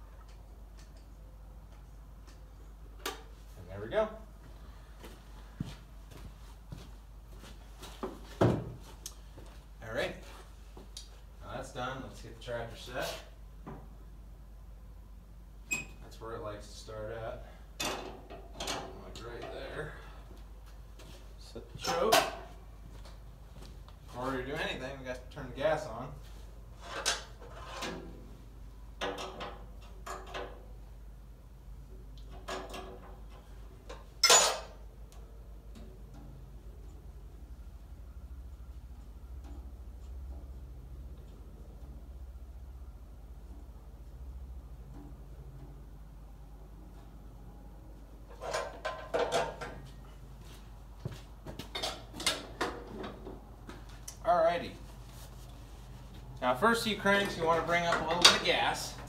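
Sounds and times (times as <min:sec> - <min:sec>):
clothing rustling: 0:54.8 - 0:56.3.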